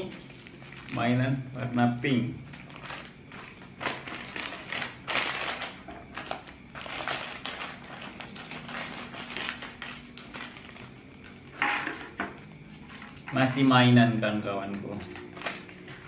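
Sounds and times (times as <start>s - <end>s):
plastic snack packet crinkling: 0.0s - 11.4s, 14.7s - 16.0s.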